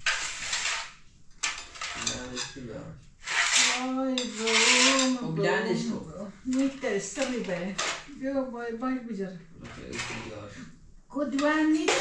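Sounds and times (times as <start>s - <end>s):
plates clinking on metal tray: 1.4s - 2.6s, 4.2s - 5.3s.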